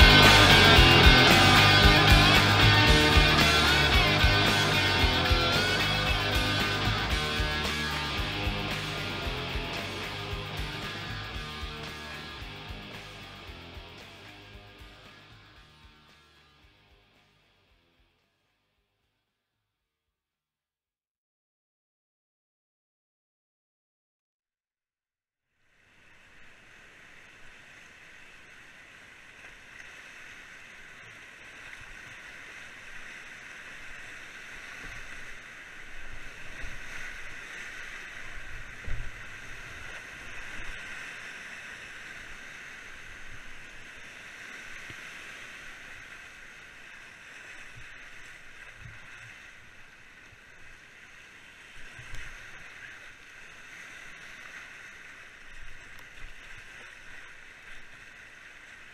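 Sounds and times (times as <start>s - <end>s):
whitewater rapids rushing: 0.0s - 16.0s, 26.2s - 58.9s
water thudding against a boat: 34.3s - 41.2s.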